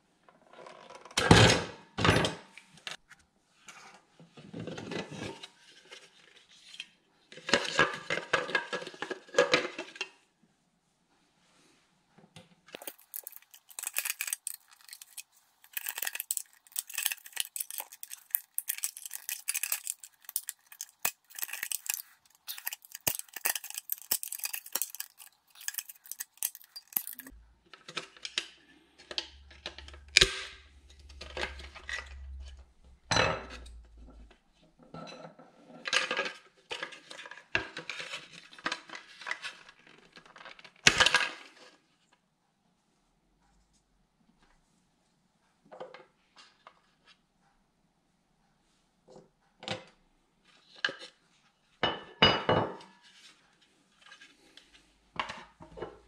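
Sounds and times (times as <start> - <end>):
handling rattles: 12.8 - 27.3
metal pick scraping plastic: 12.8 - 28.4.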